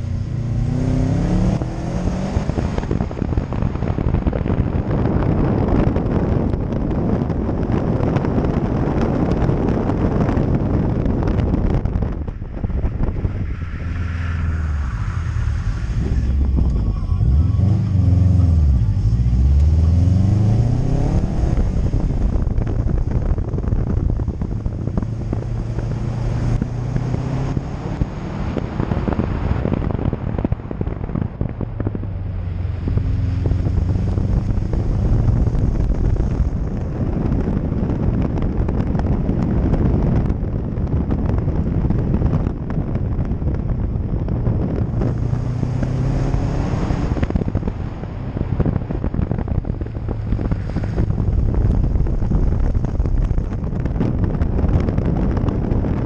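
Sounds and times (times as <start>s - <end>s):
car engine revving hard: 0.0s - 3.0s, 17.2s - 22.9s, 23.9s - 29.7s, 44.6s - 48.0s
wind buffeting microphone: 0.0s - 56.0s.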